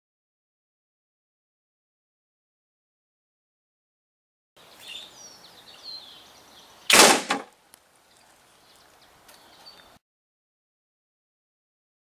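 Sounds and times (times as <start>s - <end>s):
air cannon bang: 6.9s - 7.5s
metal target rattle: 6.9s - 7.5s.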